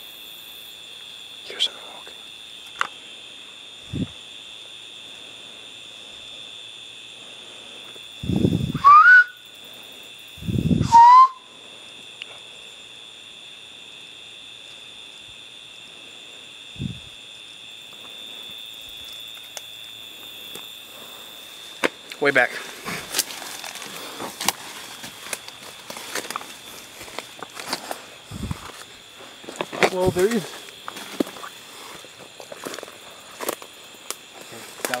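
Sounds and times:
night insects chorus: 0.0s - 35.0s
rush of air: 8.2s - 8.8s, 10.4s - 11.0s, 28.3s - 28.7s
rising whistles: 8.2s - 9.5s, 10.4s - 11.6s.

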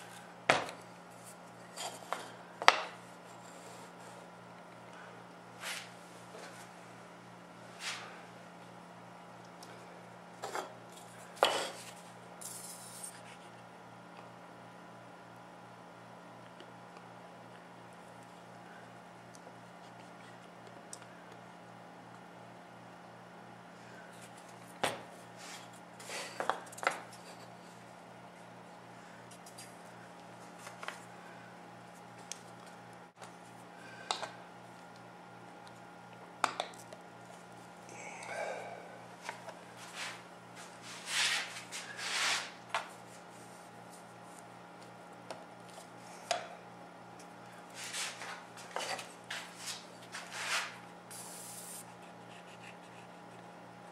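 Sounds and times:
steady low hum: 0.0s - 53.9s
glue bottle squeezed hiss: 51.1s - 51.8s.

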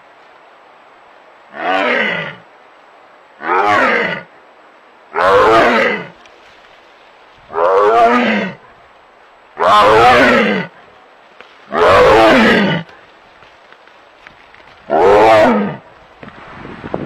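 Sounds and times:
tiger roaring: 1.5s - 2.4s, 3.4s - 4.3s, 5.1s - 6.2s, 7.5s - 8.7s, 9.6s - 10.8s, 11.7s - 13.0s, 14.8s - 15.9s.

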